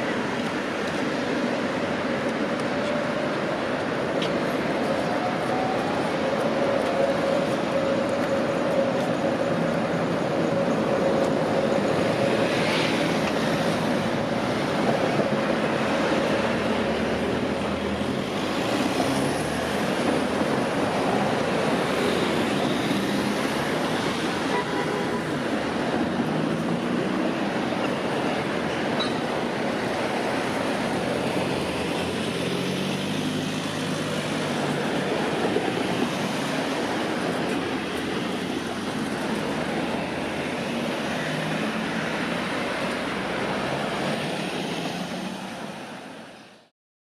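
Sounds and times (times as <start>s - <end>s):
street traffic: 0.0s - 46.7s.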